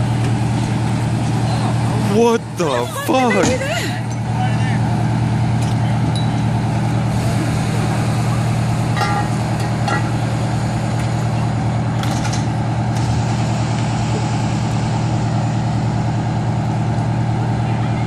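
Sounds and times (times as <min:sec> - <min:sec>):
fire engine running: 0:00.0 - 0:18.0.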